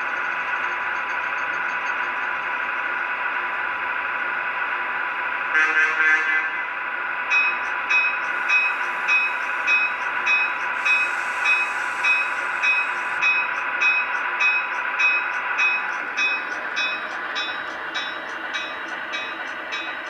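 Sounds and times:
locomotive bell ringing: 0:07.3 - 0:20.0
air hiss: 0:08.3 - 0:13.3.

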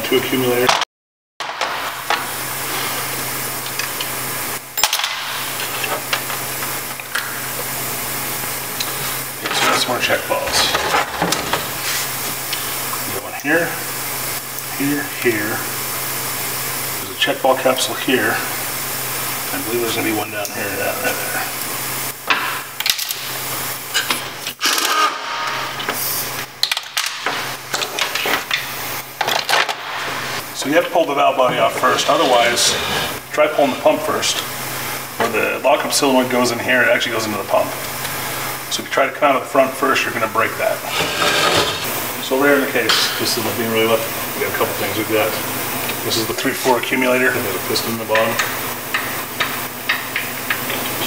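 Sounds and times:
steady hiss and hum: 0:00.0 - 0:00.8, 0:01.4 - 0:24.7, 0:25.4 - 0:51.0
power ratchet whirring: 0:40.9 - 0:41.9.

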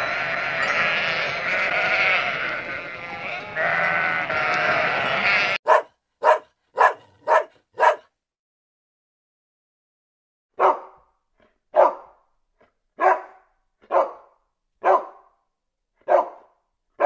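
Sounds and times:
sheep bleating: 0:00.0 - 0:05.6
dog barking: 0:05.6 - 0:08.1, 0:10.6 - 0:11.1, 0:11.7 - 0:12.2, 0:13.0 - 0:15.4, 0:16.0 - 0:17.0.

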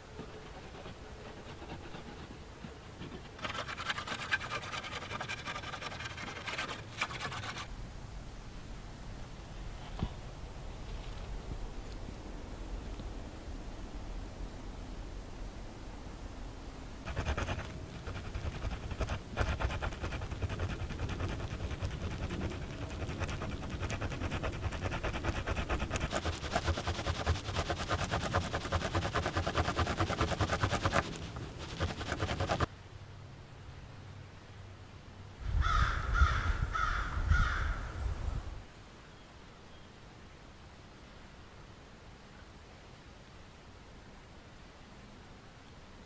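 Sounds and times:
stone tool scraping wood: 0:00.1 - 0:07.7, 0:17.1 - 0:32.7
crow cawing: 0:35.6 - 0:37.9.

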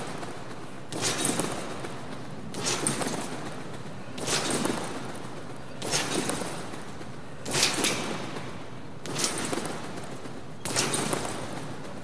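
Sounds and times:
trampoline landings with spring noise: 0:00.0 - 0:12.0.

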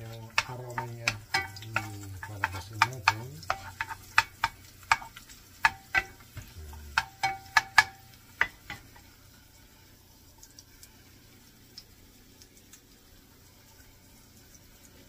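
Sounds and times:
wooden spoon knocking on pan: 0:00.0 - 0:09.0
garlic sizzling in oil: 0:00.0 - 0:15.0.

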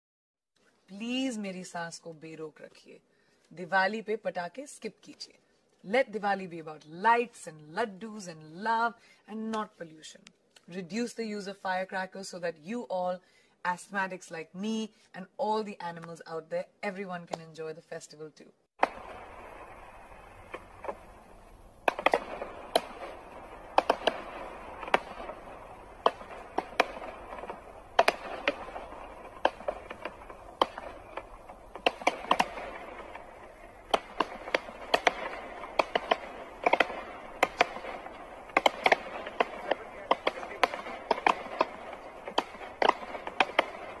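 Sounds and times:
fireworks bangs and crackles: 0:18.8 - 0:44.0
steady hiss: 0:18.8 - 0:44.0.

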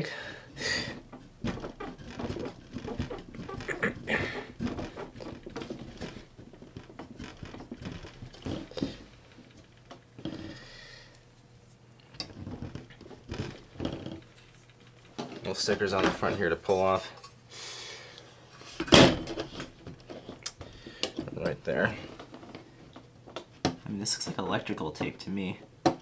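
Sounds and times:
plastic pick scraping metal: 0:00.9 - 0:09.1.

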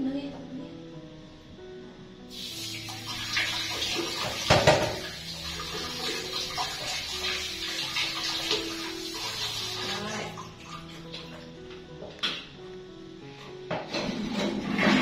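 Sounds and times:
water spraying and splashing: 0:02.3 - 0:11.3.

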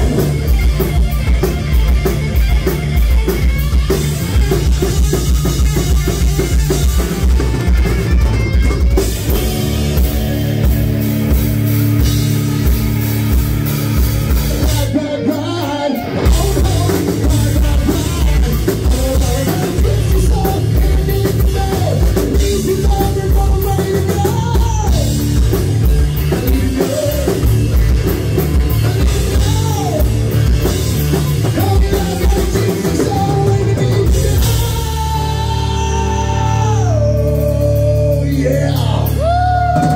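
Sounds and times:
hard rock band playing: 0:00.0 - 0:39.9
person singing: 0:14.5 - 0:25.3, 0:26.2 - 0:27.6, 0:29.1 - 0:30.2, 0:31.3 - 0:39.9.

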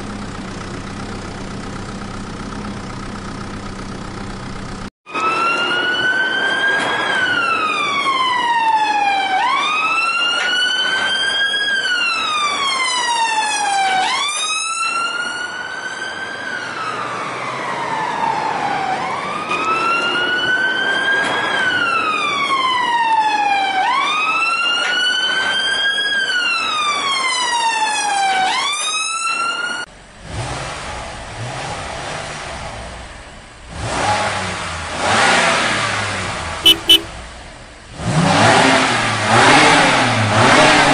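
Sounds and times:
electronic wail siren: 0:05.1 - 0:16.0.

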